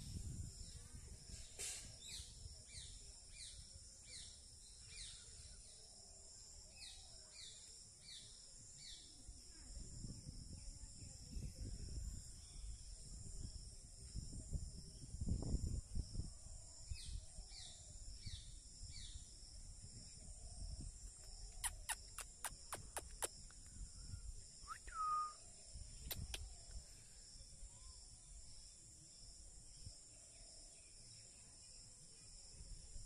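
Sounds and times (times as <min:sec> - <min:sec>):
insect chorus: 0:00.0 - 0:33.0
bird calls: 0:21.4 - 0:23.3.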